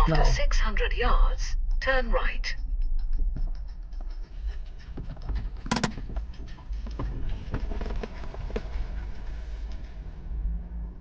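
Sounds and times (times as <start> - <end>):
car engine and tyre rumble: 3.0 - 11.0
clicks in car cabin: 5.7 - 6.1.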